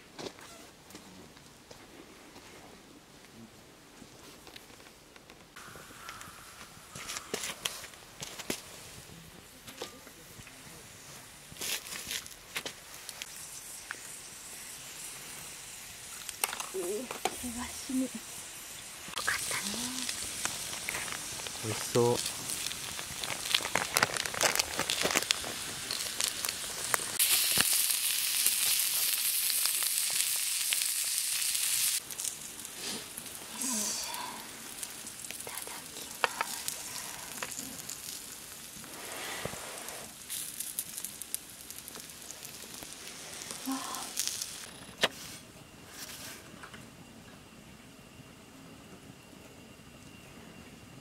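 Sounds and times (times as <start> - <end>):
wood fire crackling: 4.0 - 46.2
food sizzling in a skillet: 12.8 - 45.3.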